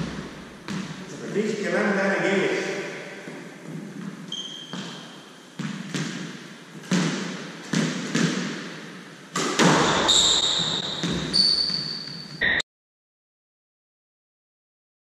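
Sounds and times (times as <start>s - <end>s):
squash ball hits: 0.0s - 1.1s, 4.0s - 11.4s
shoe squeaks: 4.3s - 5.4s, 9.8s - 12.6s.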